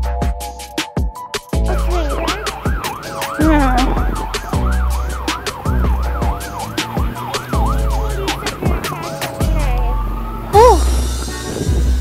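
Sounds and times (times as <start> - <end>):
background music with deep bass: 0.0 - 12.0
siren-like wail: 1.8 - 10.8.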